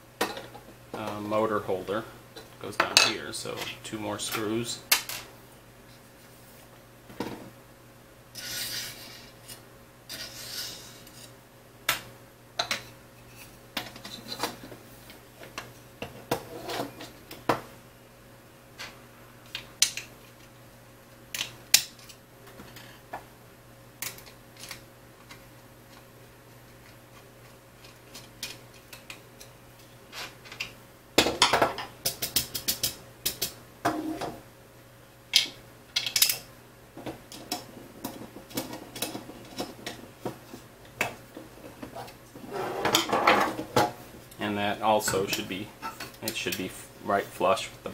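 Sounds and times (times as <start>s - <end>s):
short scrapes on wooden table: 8.4s - 11.3s, 42.4s - 43.2s.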